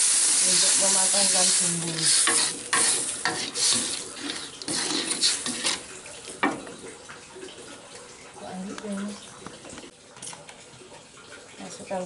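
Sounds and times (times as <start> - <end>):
liquid sizzling: 0.0 - 10.0
spatula scraping a wok: 1.4 - 5.9.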